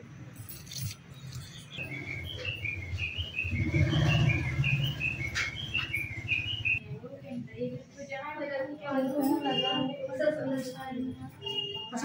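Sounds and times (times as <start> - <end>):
bird chirping: 1.1 - 6.8.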